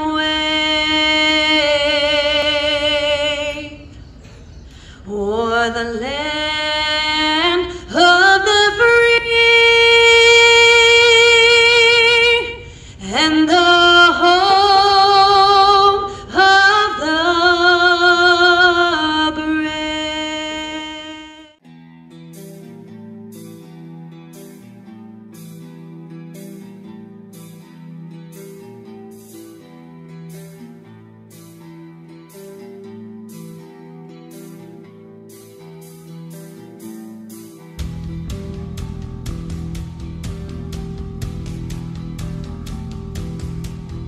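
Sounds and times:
person singing unaccompanied: 0.0s - 3.9s.

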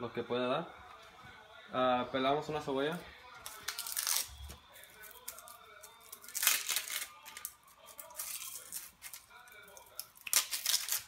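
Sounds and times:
onion skin peeling and crackling: 3.4s - 11.0s.

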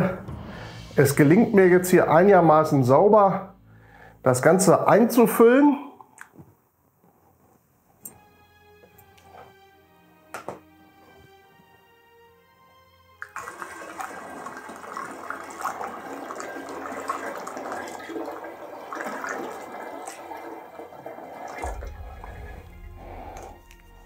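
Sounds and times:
liquid pouring through funnel: 13.2s - 24.0s
low rumble: 21.6s - 24.0s.

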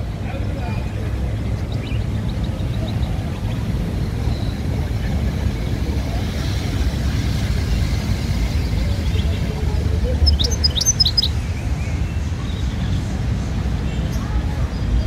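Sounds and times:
faint voices: 0.0s - 15.0s
songbird chirping: 9.0s - 12.7s.

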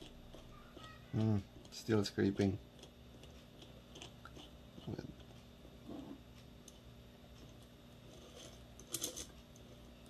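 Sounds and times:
small metal parts clicking: 8.4s - 9.4s.

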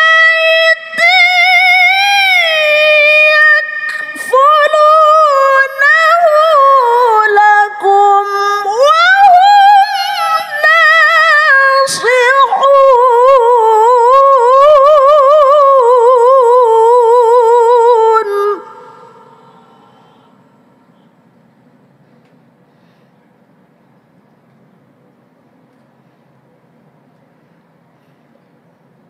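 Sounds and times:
woman reciting melodically: 0.0s - 21.2s
short breaths: 18.8s - 21.2s, 22.6s - 23.4s.

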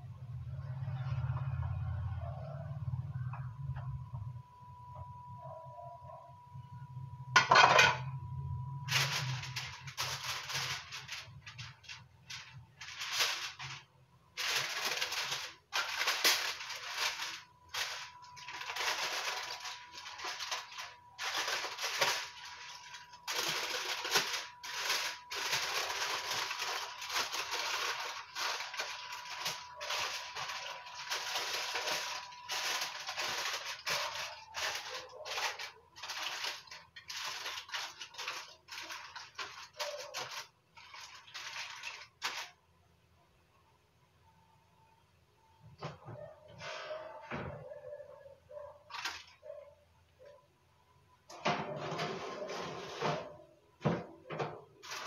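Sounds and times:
aluminium foil crinkling: 8.8s - 42.7s, 48.6s - 49.8s, 54.6s - 55.0s.

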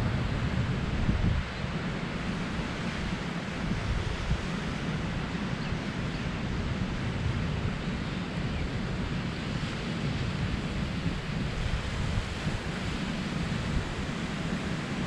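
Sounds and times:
wind rumbling on microphone: 0.0s - 15.0s
surf washing onto sand: 8.9s - 15.0s.

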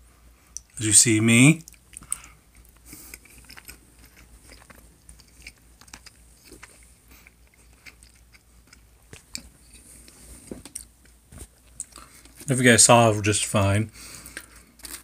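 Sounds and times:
person chewing food: 1.6s - 12.5s, 14.1s - 15.0s.

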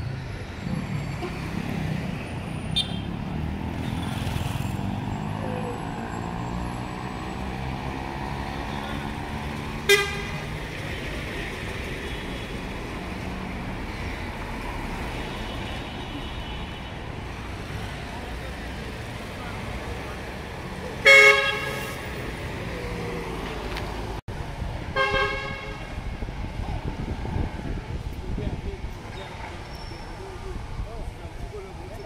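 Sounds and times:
road traffic: 0.0s - 32.0s
vehicle horn toot: 9.9s - 10.4s, 21.0s - 22.0s, 25.0s - 25.9s.

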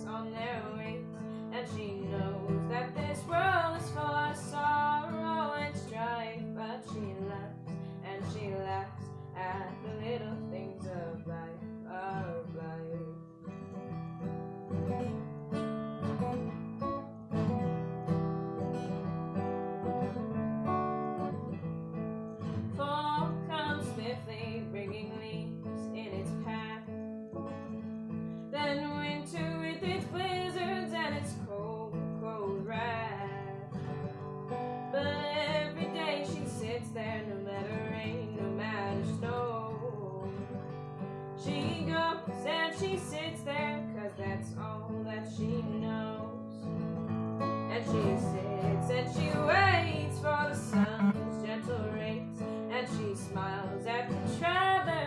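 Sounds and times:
acoustic guitar strumming: 0.0s - 25.5s, 46.8s - 54.4s.

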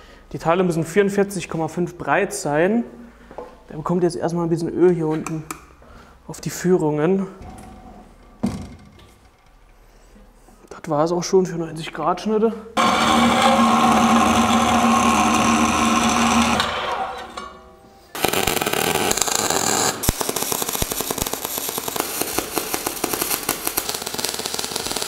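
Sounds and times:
circular saw motor humming: 12.8s - 17.4s
welding arc crackling: 12.8s - 17.4s, 18.1s - 25.0s.

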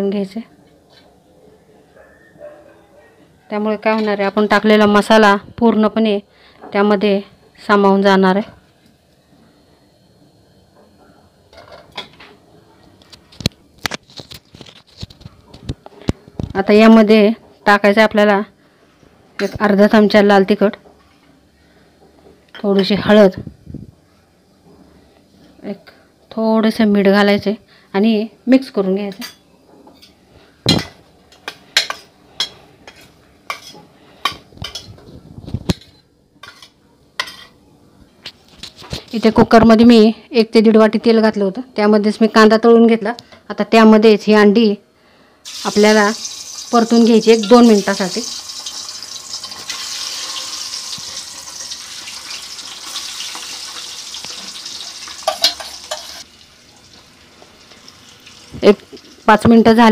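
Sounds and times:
eggs sizzling in hot oil: 45.4s - 59.9s.

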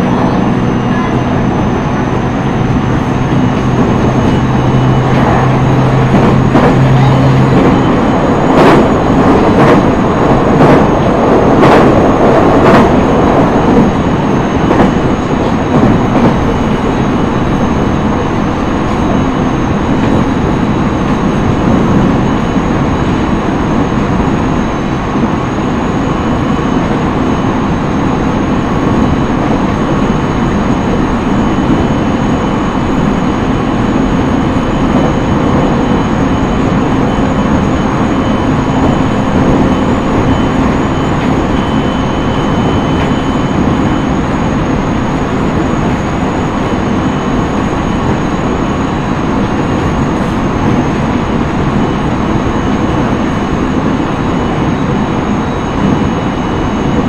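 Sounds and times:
faint steady tones: 0.0s - 57.0s
train wheels rumbling on track: 0.0s - 57.0s.

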